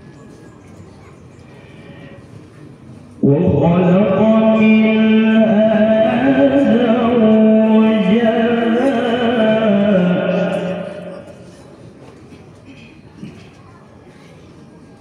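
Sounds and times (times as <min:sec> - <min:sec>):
man chanting into microphone: 0:03.2 - 0:11.4.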